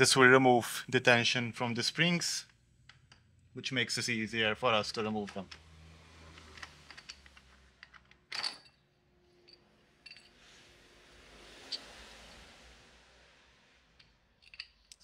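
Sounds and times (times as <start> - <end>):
metallic clicks and scrapes: 5.3 - 10.8.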